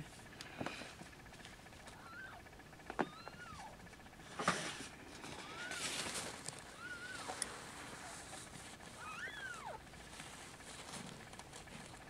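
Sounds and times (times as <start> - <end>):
faint rustling: 4.2 - 12.0
kitten mewing: 9.0 - 9.8.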